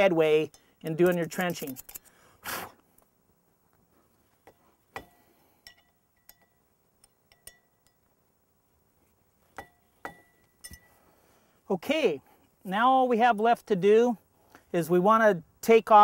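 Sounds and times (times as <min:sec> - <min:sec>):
metallic clinks on steel wheel: 0:09.6 - 0:10.9.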